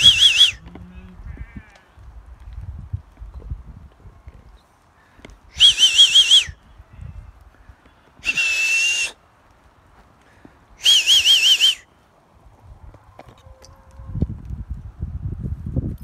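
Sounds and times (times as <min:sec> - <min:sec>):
loud warbling whistles: 0:00.0 - 0:00.7, 0:05.6 - 0:06.6, 0:08.2 - 0:09.2, 0:10.8 - 0:11.9.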